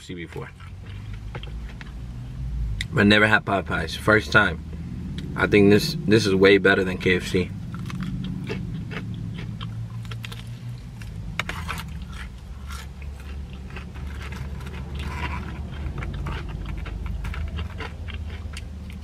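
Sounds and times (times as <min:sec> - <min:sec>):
steady low hum: 0:00.0 - 0:19.0
crunchy chewing: 0:00.2 - 0:02.1, 0:06.9 - 0:19.0.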